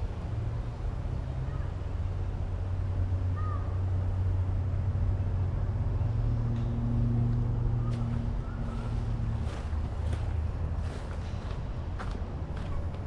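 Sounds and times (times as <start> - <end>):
distant traffic rumble: 0.0 - 13.0.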